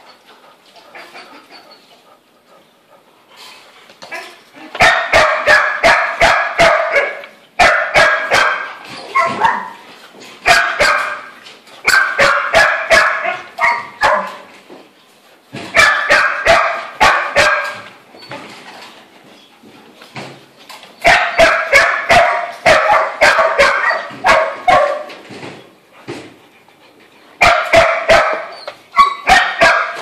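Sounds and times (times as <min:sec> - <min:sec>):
dog barking: 0:04.2 - 0:09.8, 0:10.5 - 0:11.3, 0:11.9 - 0:14.5, 0:15.7 - 0:17.8, 0:21.0 - 0:25.1, 0:27.4 - 0:30.0.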